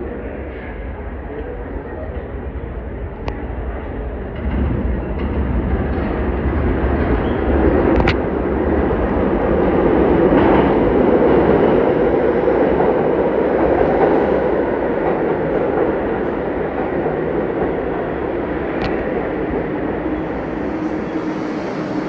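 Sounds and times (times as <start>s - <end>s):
subway train rumbling into station: 0.0s - 22.0s.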